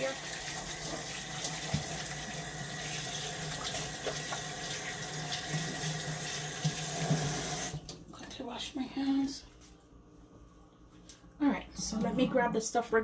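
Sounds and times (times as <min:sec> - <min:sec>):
tap water running: 0:00.0 - 0:08.4.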